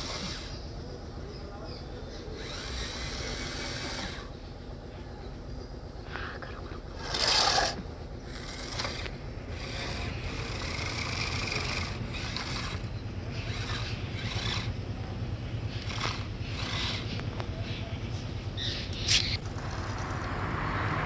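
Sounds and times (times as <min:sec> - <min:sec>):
toy motor and gears whirring: 0:00.0 - 0:00.8, 0:02.2 - 0:04.4, 0:06.4 - 0:17.7, 0:18.6 - 0:19.8
scraping clatter: 0:06.4 - 0:17.5.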